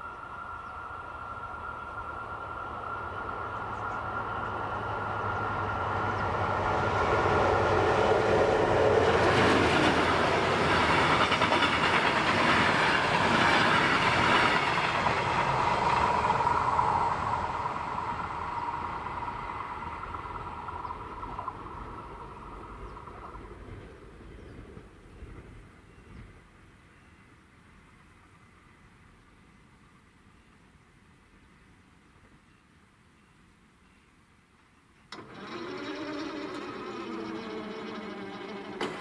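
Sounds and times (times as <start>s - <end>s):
train wheels clattering on rails: 1.9s - 23.8s, 36.4s - 39.0s.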